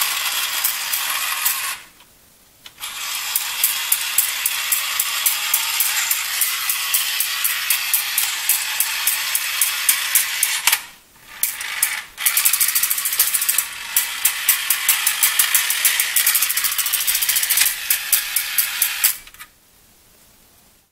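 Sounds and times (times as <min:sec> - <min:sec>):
toy car motor whirring and clicking: 0:00.0 - 0:01.9, 0:02.7 - 0:19.5.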